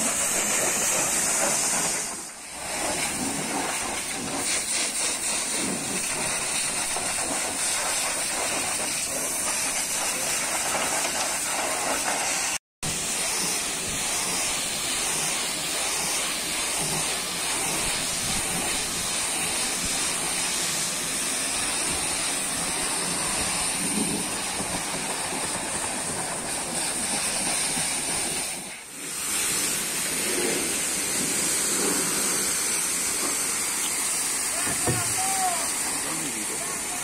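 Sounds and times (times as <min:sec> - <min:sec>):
pressure washer spraying: 0:00.0 - 0:37.0
water splashing off metal: 0:00.0 - 0:37.0.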